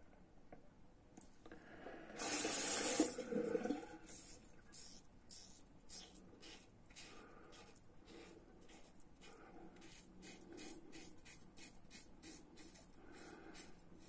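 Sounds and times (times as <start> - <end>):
razor scraping stubble: 4.8 - 14.0.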